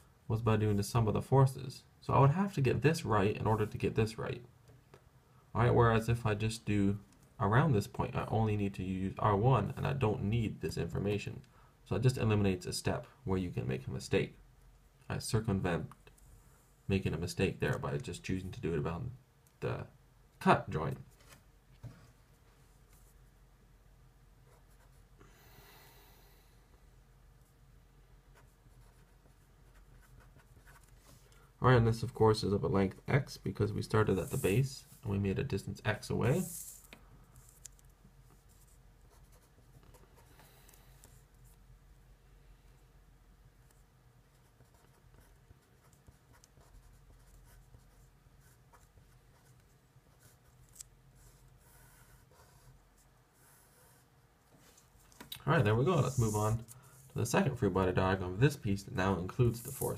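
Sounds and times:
low steady hum: 0:00.0 - 0:59.9
marker pen scratching on paper: 0:24.4 - 0:25.1, 0:28.3 - 0:31.3, 0:34.0 - 0:35.0, 0:36.2 - 0:41.6, 0:43.7 - 0:54.1, 0:55.9 - 0:57.2, 0:59.5 - 0:59.9.

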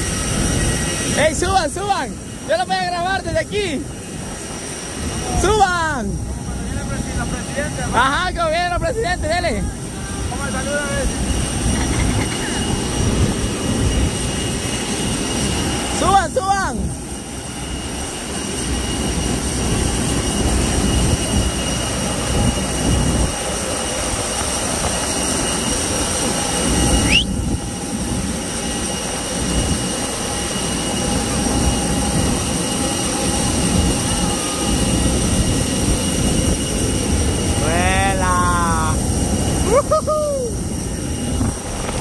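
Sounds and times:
jet airliner turbines whining: 0:00.0 - 0:42.0
rising whistle: 0:26.6 - 0:27.6.

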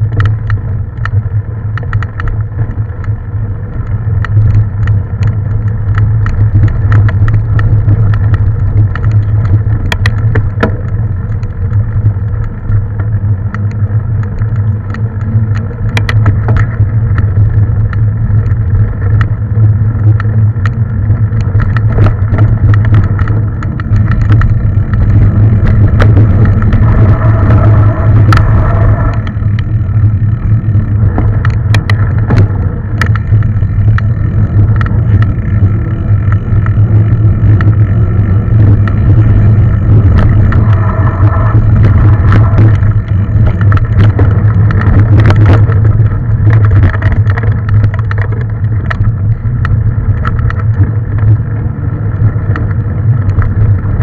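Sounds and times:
bike rattles and clicks: 0:00.0 - 0:54.0
wind and ground rumble: 0:00.0 - 0:54.0
high ringing tone: 0:26.6 - 0:29.4, 0:40.1 - 0:42.9.

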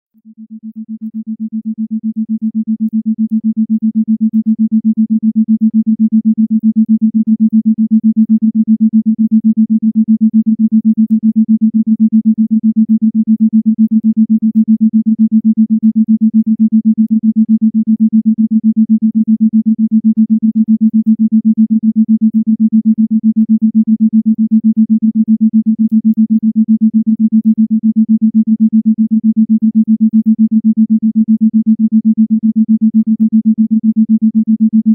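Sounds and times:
pulsed low electronic tone: 0:13.8 - 0:34.9.

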